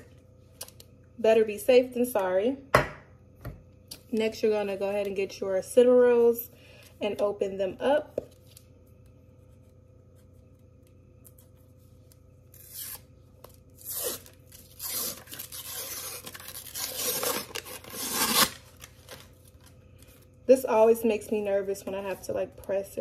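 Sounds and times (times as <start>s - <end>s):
paper label tearing: 13.8s - 18.9s.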